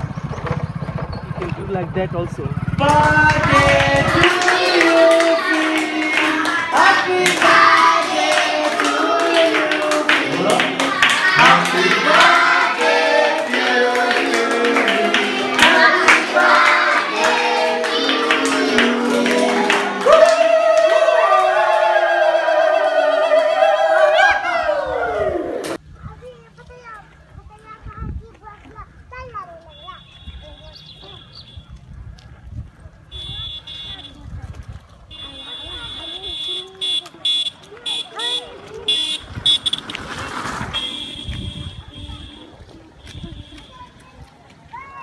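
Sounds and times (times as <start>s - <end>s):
children singing: 3.4s - 20.0s
hand claps: 7.2s - 12.4s.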